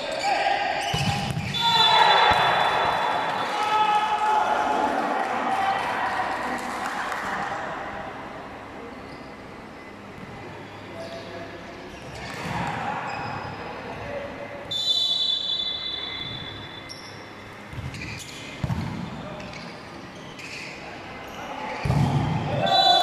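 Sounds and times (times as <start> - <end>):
whistle blast: 1.5 - 3.5, 14.7 - 16.9, 22.6 - 23.0
ball bouncing: 17.7 - 19.5.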